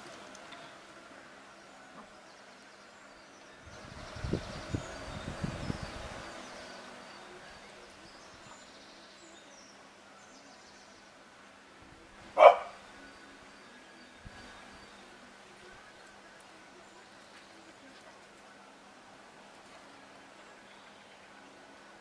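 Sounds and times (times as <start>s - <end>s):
dog barking: 12.4s - 12.8s.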